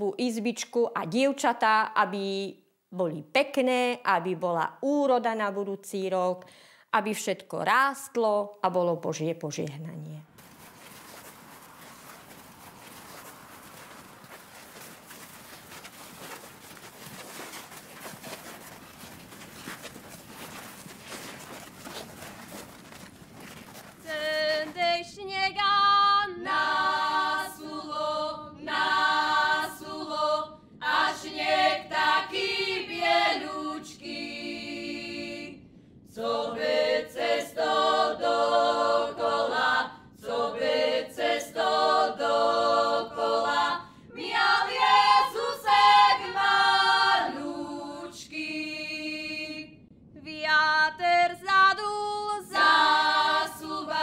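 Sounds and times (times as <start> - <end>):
girls singing a cappella: 24.0 - 54.0.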